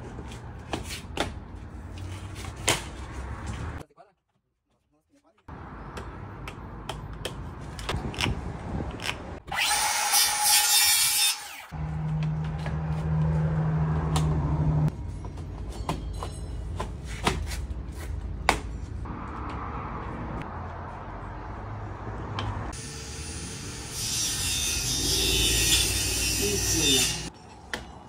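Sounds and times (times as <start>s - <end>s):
hand tools tapping and knocking: 15.2s - 17.5s.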